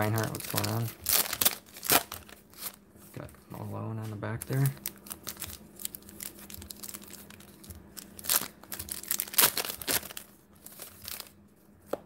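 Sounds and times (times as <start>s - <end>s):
trading cards and paper rustling: 0.0s - 12.0s.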